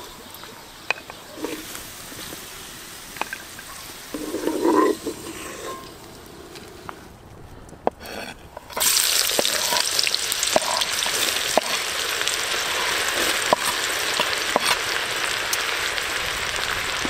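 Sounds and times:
wooden spoon scraping a pot: 0:00.9 - 0:02.4, 0:03.2 - 0:06.1, 0:08.0 - 0:11.9.

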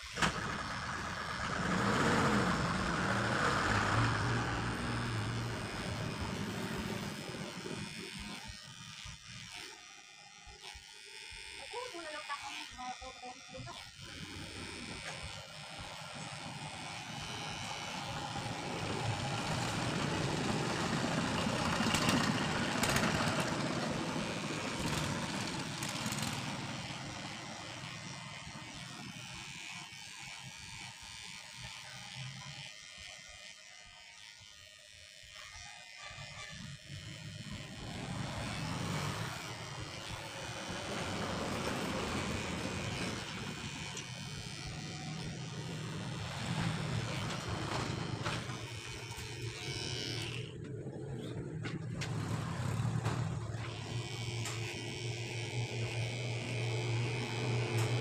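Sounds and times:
passing road traffic: 0:00.2 - 0:07.1, 0:18.0 - 0:26.7.

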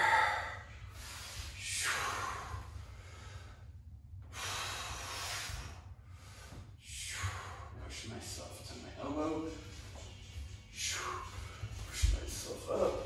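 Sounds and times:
man breathing heavily: 0:00.0 - 0:08.2, 0:09.0 - 0:13.0.

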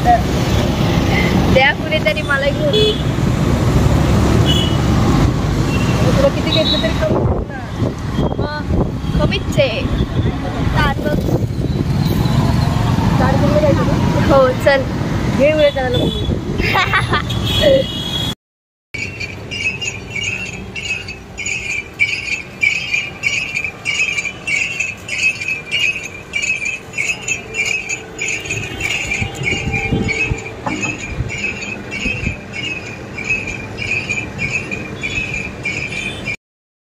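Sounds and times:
bells jingling: 0:19.0 - 0:36.4.

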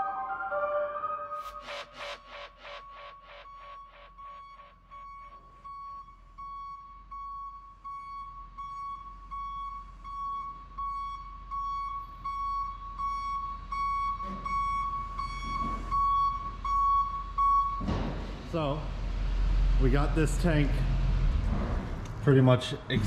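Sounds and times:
electronic background music: 0:00.0 - 0:04.7
vehicle backup alarm beeping: 0:01.4 - 0:17.9.

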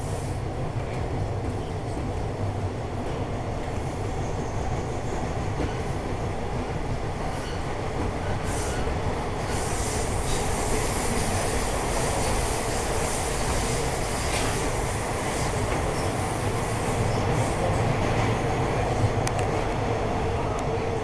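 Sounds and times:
subway car rumble: 0:00.0 - 0:21.0
wheels screeching on rails: 0:07.2 - 0:19.7.

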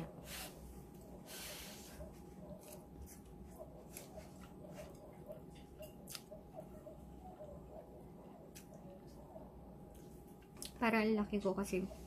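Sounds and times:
chewing: 0:02.5 - 0:06.7.

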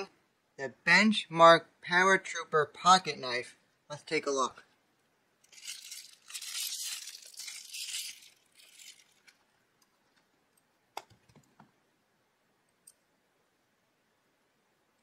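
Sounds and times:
plastic wrap crinkling and tearing: 0:05.5 - 0:09.5.

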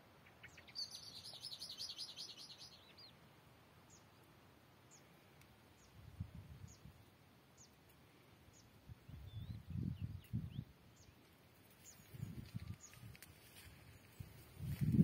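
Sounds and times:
small bird calling: 0:00.2 - 0:03.2.

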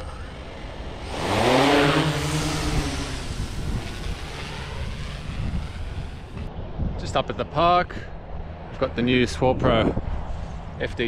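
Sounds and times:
drone motors whining: 0:00.0 - 0:06.5.

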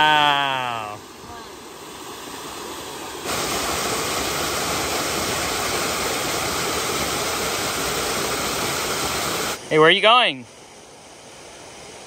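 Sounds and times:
waterfall pouring over rock: 0:00.0 - 0:09.6.

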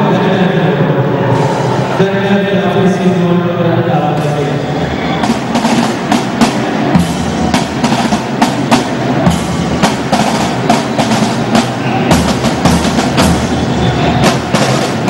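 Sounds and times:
drum band marching beat: 0:04.1 - 0:15.0.

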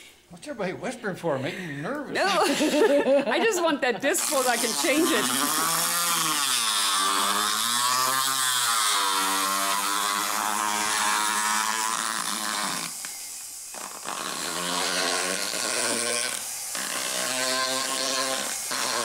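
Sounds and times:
power float motor grinding teeth: 0:04.1 - 0:19.0.

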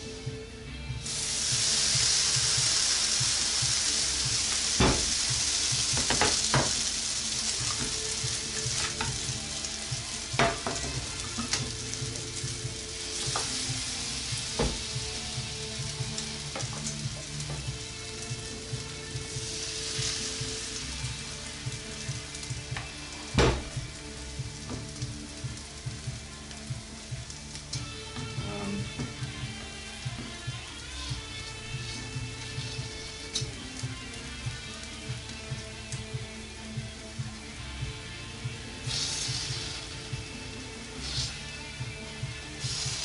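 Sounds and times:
pancake batter sizzling in pans: 0:01.0 - 0:43.0
spatula knocking on pans: 0:10.4 - 0:11.7.

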